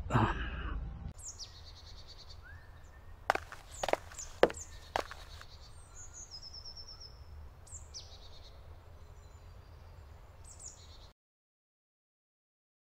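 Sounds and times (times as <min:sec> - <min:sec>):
songbird chirps: 0:01.1 - 0:11.1.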